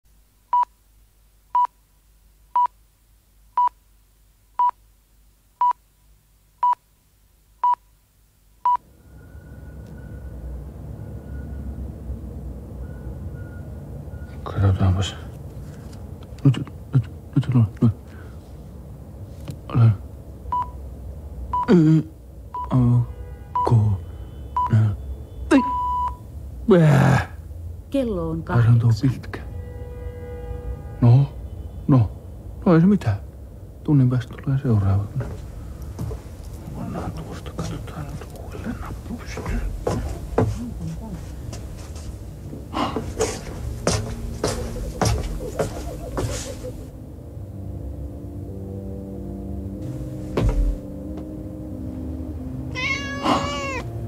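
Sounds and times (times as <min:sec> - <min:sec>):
low rumbling noise: 0:35.0 - 0:54.0.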